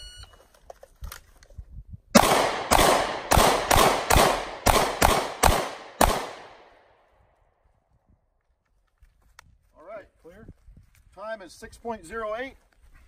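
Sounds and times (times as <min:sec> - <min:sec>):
pistol shots echoing: 0:02.2 - 0:06.8.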